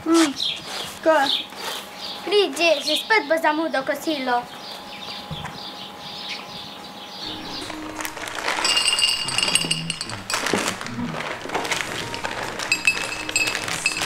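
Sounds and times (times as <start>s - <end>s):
background music: 7.2s - 14.0s
plastic bag crackling: 7.2s - 14.0s
glasses and dishes clinking: 7.3s - 14.0s.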